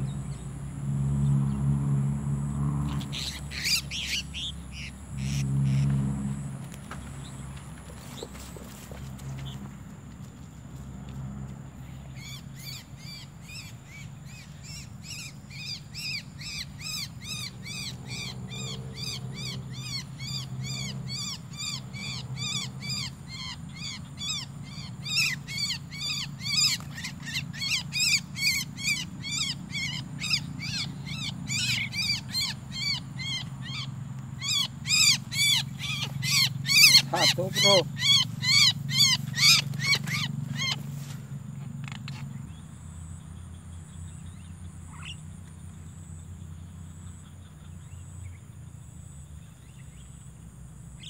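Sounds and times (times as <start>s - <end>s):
birds giving harsh calls: 2.9s - 9.7s, 12.0s - 42.6s, 44.1s - 45.4s.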